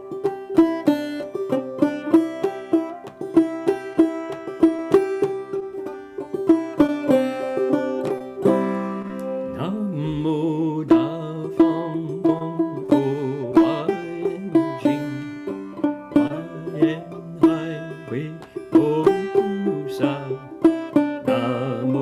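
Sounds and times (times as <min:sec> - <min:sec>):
banjo picking: 0:00.0 - 0:22.0
low voice singing wavering notes: 0:09.4 - 0:20.6.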